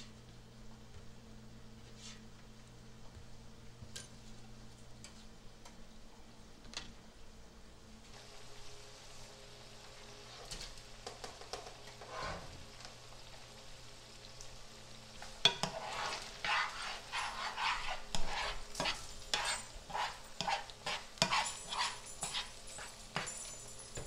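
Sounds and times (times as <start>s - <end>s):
vegetables sizzling in frying pan: 8.0s - 23.3s
spoon scraping pan: 11.6s - 12.6s, 15.4s - 23.3s.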